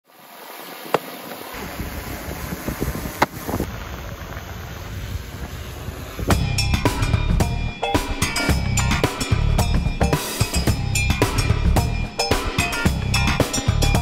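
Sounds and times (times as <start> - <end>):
wind buffeting microphone: 1.5 - 10.0.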